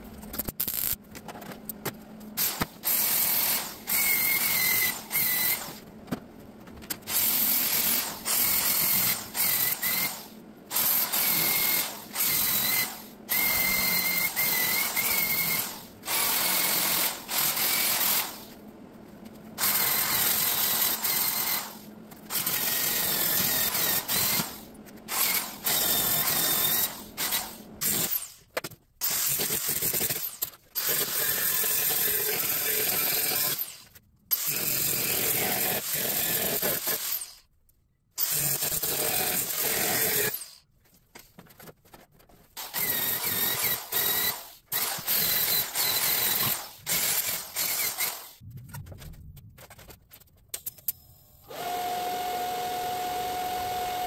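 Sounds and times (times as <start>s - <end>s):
welder crackling: 0.3s - 1.0s.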